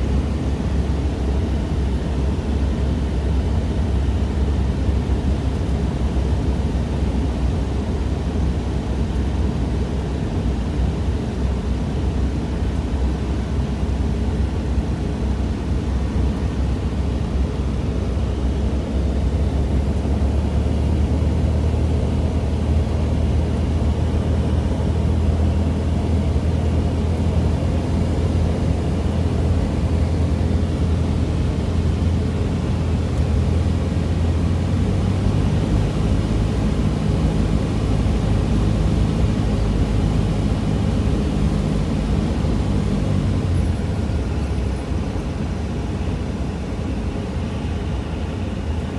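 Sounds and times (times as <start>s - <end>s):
propeller plane engine droning: 0.0s - 48.9s.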